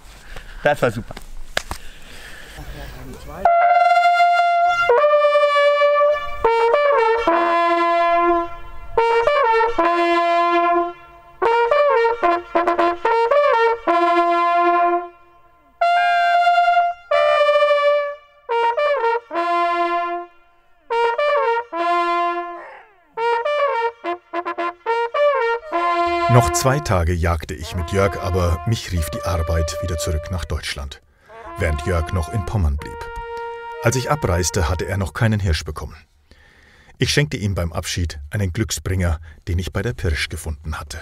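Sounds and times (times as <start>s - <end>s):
hunting horn blowing: 3.4s - 35.3s.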